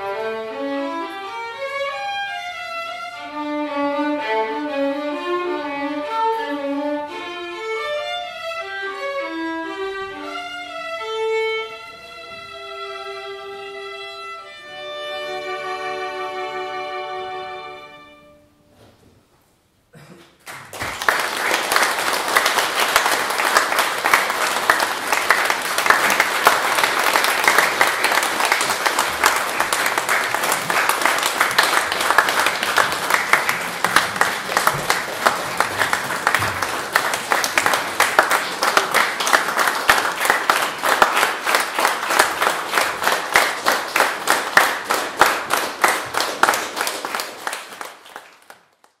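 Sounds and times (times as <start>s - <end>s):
audience applauding: 20.4s - 49.0s.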